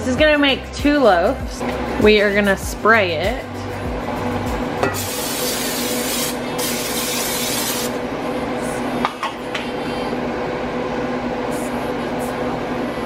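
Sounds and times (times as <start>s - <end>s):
cooking spray hissing: 4.8s - 8.0s.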